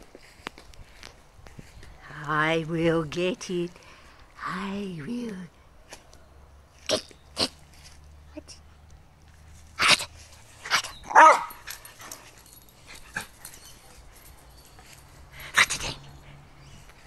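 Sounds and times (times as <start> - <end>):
dog barking: 11.1 - 11.6.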